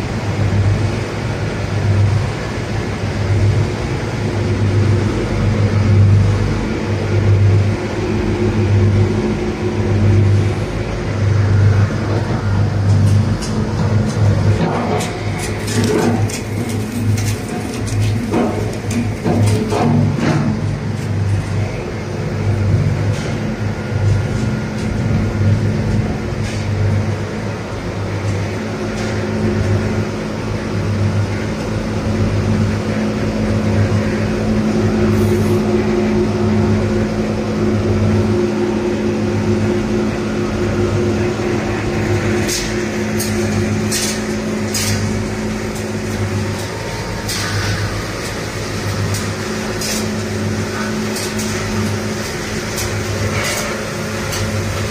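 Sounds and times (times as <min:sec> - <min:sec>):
granulator machine hum: 0:00.0 - 0:54.9
sharp clicks and knocks: 0:12.1 - 0:21.2, 0:42.2 - 0:54.9.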